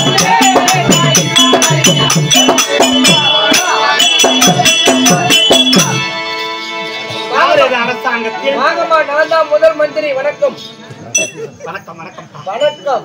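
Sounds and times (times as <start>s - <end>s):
hand drum beat: 0.0s - 6.0s.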